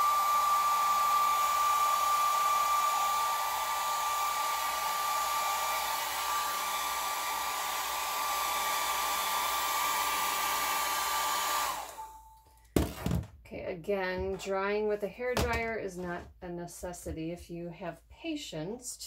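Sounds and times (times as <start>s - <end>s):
hair dryer blowing: 0.0s - 12.2s.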